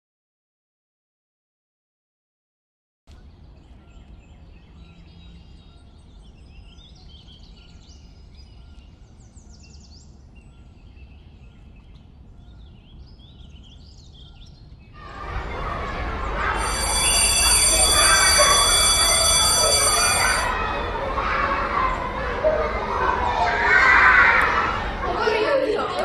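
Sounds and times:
loud rushing noise: 15.0 - 23.1.

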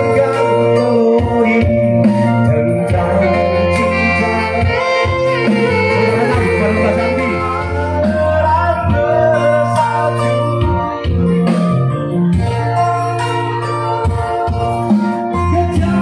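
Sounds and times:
keyboard chords over bass: 0.0 - 16.0
woman and man singing duet: 2.6 - 10.1.

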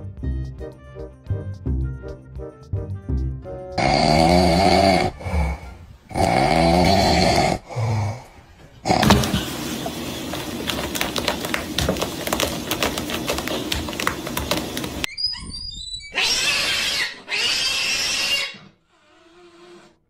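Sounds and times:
cat purring loudly: 3.8 - 8.2
cat hissing: 16.2 - 20.0.

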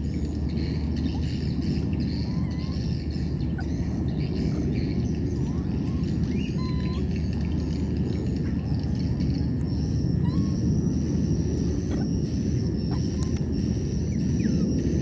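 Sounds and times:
low outdoor rumble: 0.0 - 15.0
rising whistles: 9.1 - 15.0.

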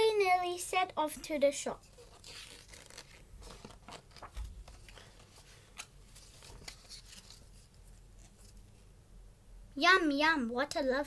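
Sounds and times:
paper pages rustling: 1.8 - 8.8.

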